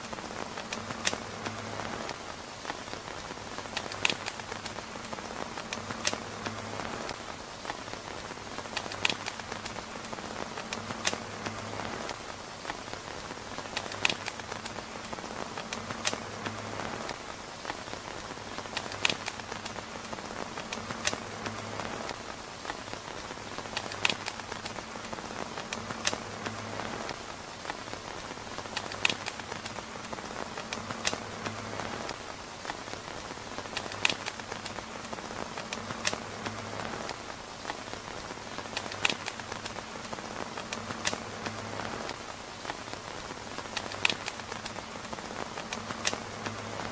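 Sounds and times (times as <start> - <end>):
rain pattering on tent fabric: 0.0 - 46.9
sharp ticks: 3.6 - 4.8, 8.6 - 12.2, 13.6 - 17.8, 18.6 - 19.8, 23.7 - 27.9, 28.6 - 32.8, 33.7 - 34.8, 38.7 - 39.8, 40.6 - 42.8, 43.7 - 44.9.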